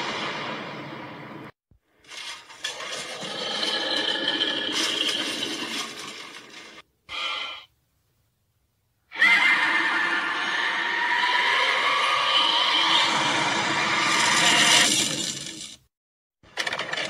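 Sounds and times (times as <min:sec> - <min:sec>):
shrill dragon cry: 0:09.1 - 0:14.9.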